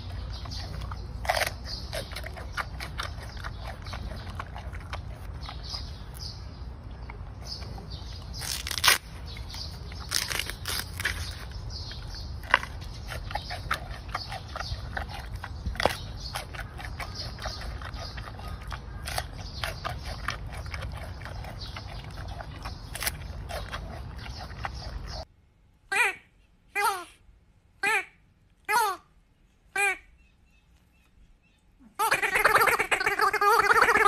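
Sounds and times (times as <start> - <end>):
panda crunching bamboo: 0.0 - 6.3, 8.0 - 25.2
steady low rumble: 0.0 - 25.8.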